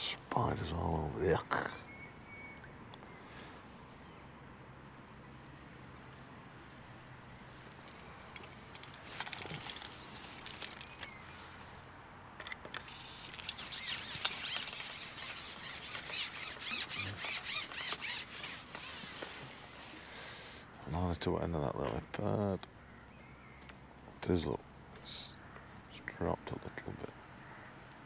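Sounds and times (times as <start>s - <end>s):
fishing pole sections rubbing and squeaking: 7.5s - 11.8s, 12.4s - 20.0s.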